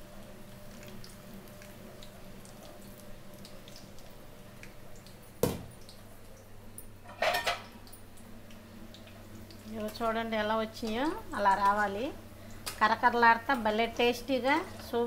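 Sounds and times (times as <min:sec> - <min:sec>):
food deep-frying in hot oil: 0:00.0 - 0:15.0
sharp knock: 0:05.4 - 0:05.7.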